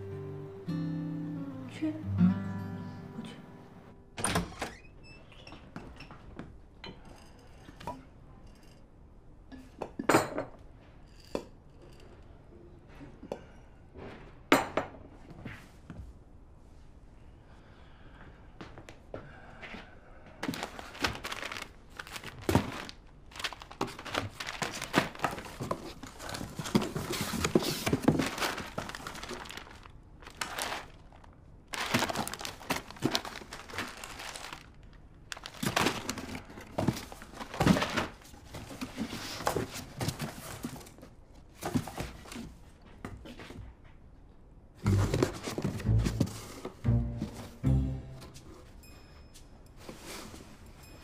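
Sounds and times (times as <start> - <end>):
cardboard rustling and crinkling: 20.4 - 42.8, 44.9 - 46.8.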